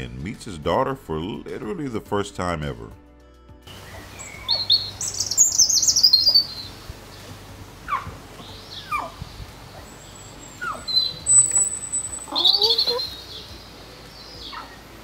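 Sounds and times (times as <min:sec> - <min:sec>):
songbird chirping trill: 0:03.6 - 0:15.0
short downward-sliding bird calls: 0:03.7 - 0:06.8, 0:07.9 - 0:13.6.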